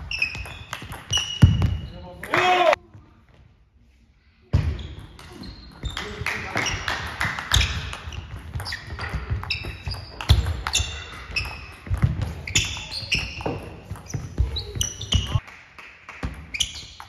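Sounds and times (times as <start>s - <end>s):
shoes squeaking on floor: 0.0s - 2.1s, 4.8s - 15.4s, 16.5s - 17.0s.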